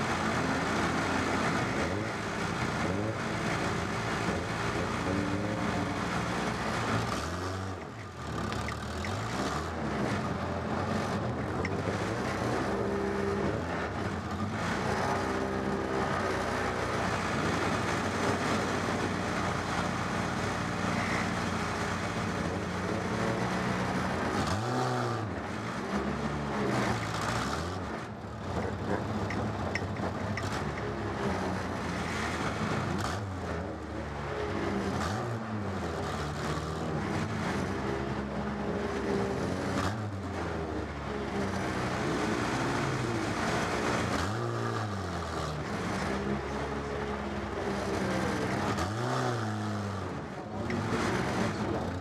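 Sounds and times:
car engine revving: 0:00.0 - 0:52.0.

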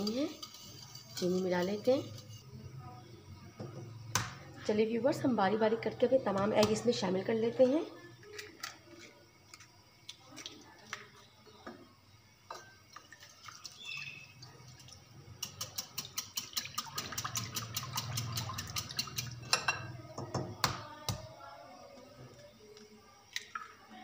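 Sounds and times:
whisk ticking against glass bowl: 0:00.0 - 0:02.4, 0:15.4 - 0:19.4
whisk knocking on bowl: 0:15.4 - 0:19.4.

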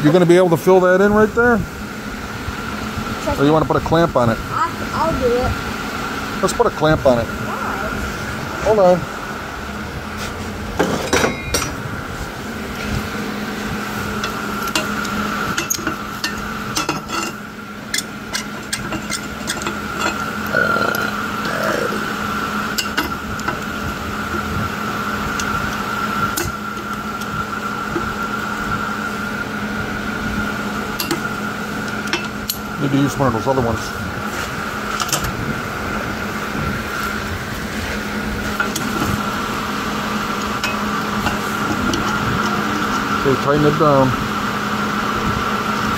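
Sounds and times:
fan hum: 0:00.0 - 0:45.9
metal tools clinking on steel table: 0:10.8 - 0:11.8, 0:14.2 - 0:20.2.

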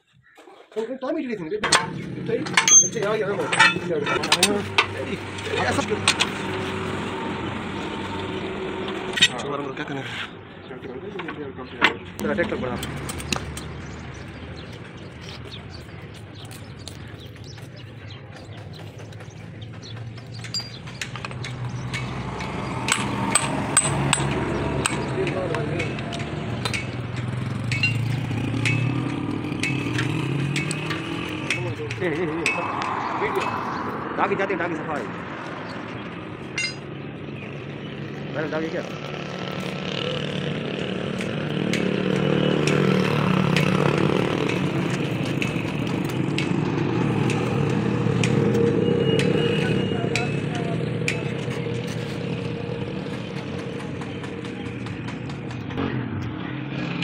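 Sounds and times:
metal parts clinking: 0:01.6 - 0:05.0, 0:20.4 - 0:21.5, 0:22.9 - 0:25.0, 0:27.6 - 0:28.9, 0:36.5 - 0:36.9
hammer striking metal: 0:01.6 - 0:06.5, 0:20.4 - 0:33.6, 0:36.5 - 0:36.9
vehicle engine running: 0:01.7 - 0:57.0.

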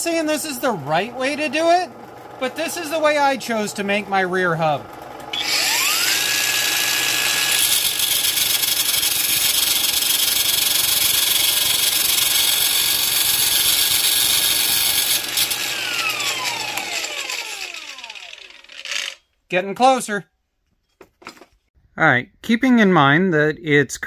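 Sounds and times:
angle grinder grinding metal: 0:00.2 - 0:19.3.

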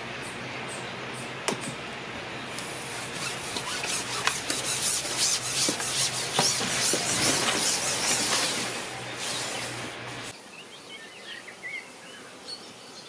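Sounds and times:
fishing pole handling noise: 0:02.6 - 0:10.3
scratchy rustles: 0:02.6 - 0:10.3.

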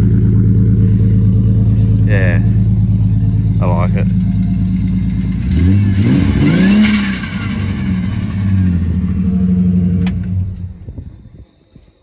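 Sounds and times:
car engine revving and idling: 0:00.0 - 0:11.8
person talking: 0:02.0 - 0:02.6, 0:03.6 - 0:04.1.

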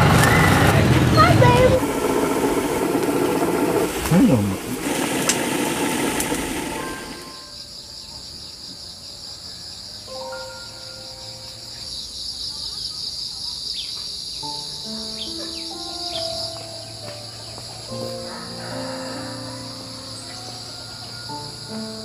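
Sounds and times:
insect chorus: 0:01.8 - 0:22.0
soft melodic background music: 0:10.0 - 0:12.2, 0:14.4 - 0:22.0.

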